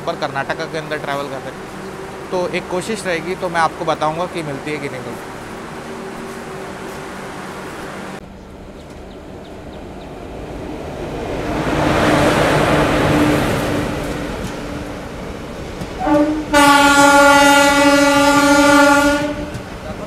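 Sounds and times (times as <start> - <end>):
train rumble: 0.0 - 20.0
locomotive air horn: 16.0 - 19.7.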